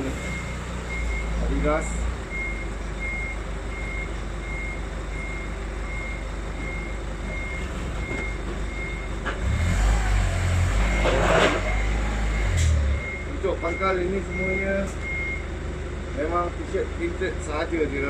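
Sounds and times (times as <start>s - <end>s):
high electronic beeps: 10.9s - 15.4s.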